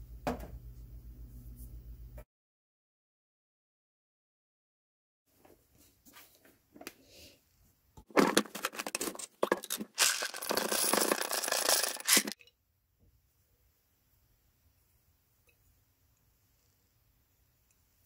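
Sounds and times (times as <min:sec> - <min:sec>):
nuts rattling as poured: 0:08.2 - 0:12.4.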